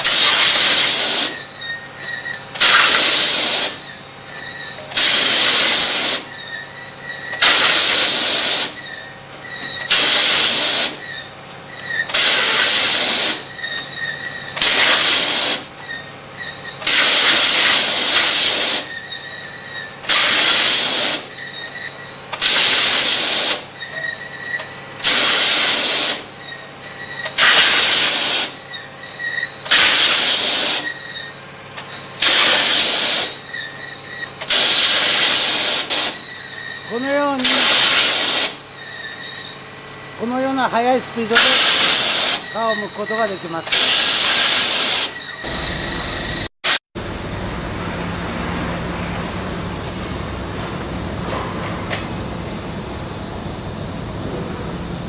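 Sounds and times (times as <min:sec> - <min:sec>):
compressed air jets hissing: 0:00.0 - 0:01.4, 0:02.6 - 0:03.8, 0:05.0 - 0:06.3, 0:07.4 - 0:08.8, 0:09.9 - 0:11.0, 0:12.1 - 0:13.4, 0:14.6 - 0:15.7, 0:16.8 - 0:18.9, 0:20.1 - 0:21.3, 0:22.4 - 0:23.6, 0:25.0 - 0:26.3, 0:27.4 - 0:28.6, 0:29.7 - 0:30.9, 0:32.2 - 0:33.3, 0:34.5 - 0:36.2, 0:37.4 - 0:38.6, 0:41.3 - 0:45.6.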